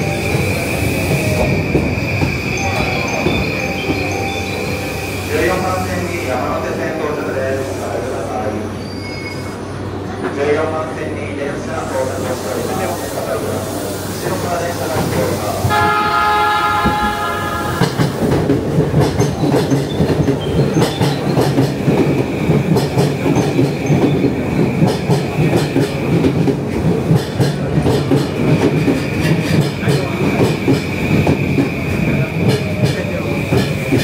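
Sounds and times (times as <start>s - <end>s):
train rumble and wheel clatter: 0.0s - 34.0s.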